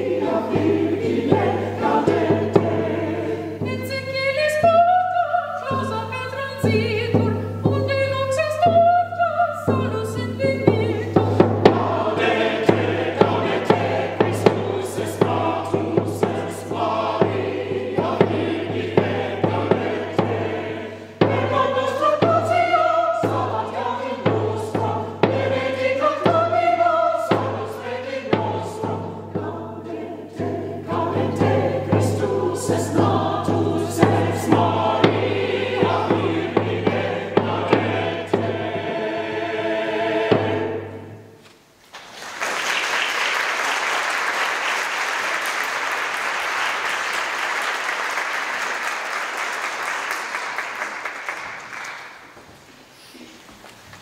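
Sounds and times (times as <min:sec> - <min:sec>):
choir singing a carol: 0:00.0 - 0:07.6, 0:08.2 - 0:41.4
audience applauding: 0:41.9 - 0:52.4.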